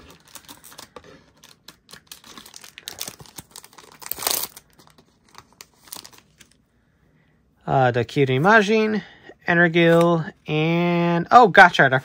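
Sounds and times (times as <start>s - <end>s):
foil wrapper crinkling: 0.0s - 6.6s
foil wrapper tearing open: 0.0s - 6.6s.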